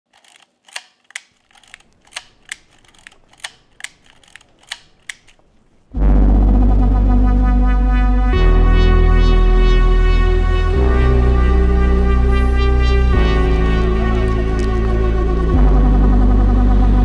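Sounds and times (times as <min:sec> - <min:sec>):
camera shutter clicks: 0:00.2 - 0:05.4
loud music with held chords: 0:06.0 - 0:17.0.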